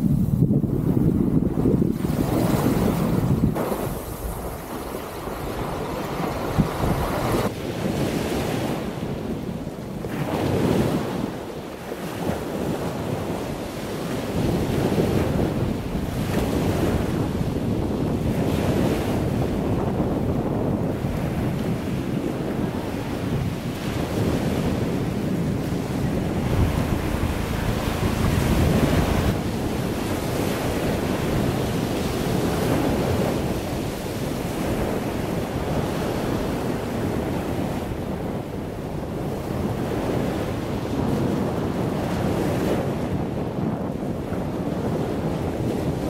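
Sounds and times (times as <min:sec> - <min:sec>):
wind buffeting microphone: 0:00.0 - 0:46.0
sea waves rushing: 0:01.9 - 0:09.2, 0:10.0 - 0:42.9.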